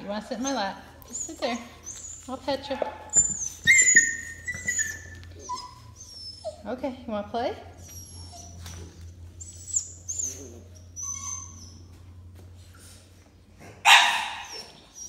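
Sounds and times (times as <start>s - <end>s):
puppy whining: 0.2s - 6.8s, 7.6s - 13.1s, 13.9s - 15.0s
puppy yapping: 0.4s - 6.6s, 7.8s - 12.1s, 13.8s - 15.0s.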